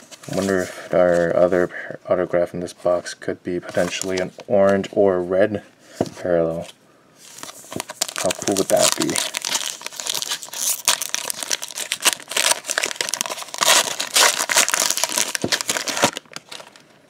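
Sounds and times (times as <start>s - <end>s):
foil wrapper crinkling: 7.4s - 16.9s.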